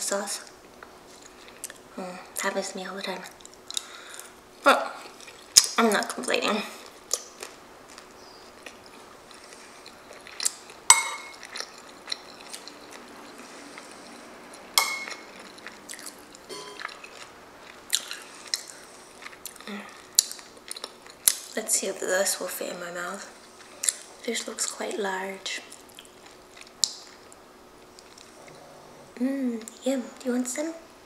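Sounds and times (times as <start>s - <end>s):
chewing: 1.1s - 1.8s, 3.2s - 4.4s, 5.0s - 5.8s, 6.8s - 21.6s, 23.2s - 24.8s, 25.6s - 28.6s
spoon clinking on ceramic bowl: 10.9s - 11.4s, 14.8s - 15.2s, 16.5s - 17.0s.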